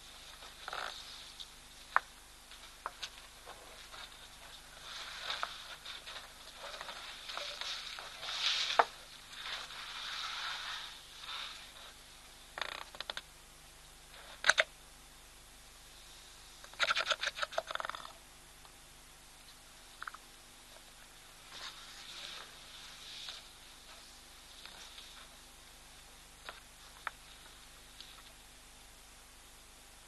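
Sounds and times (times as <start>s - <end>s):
elephants scraping and scuffing: 3.5s - 11.9s.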